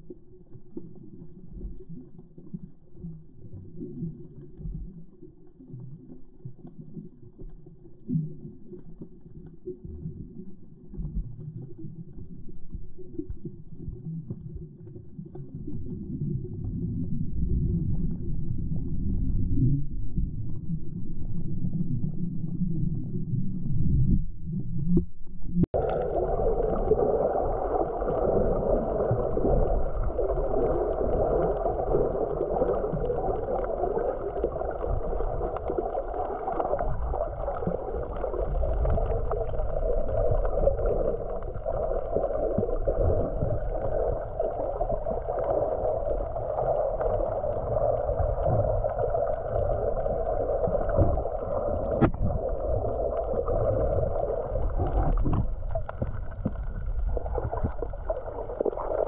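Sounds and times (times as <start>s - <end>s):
muffled underwater gurgling: 0.0s - 59.0s.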